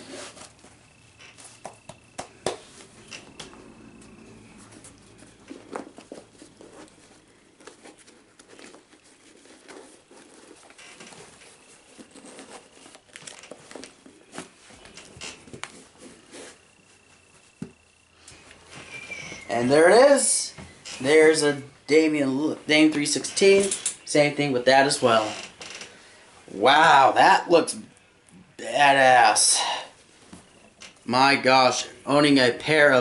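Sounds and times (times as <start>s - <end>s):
paper and packaging crinkling: 4.5s - 17.2s.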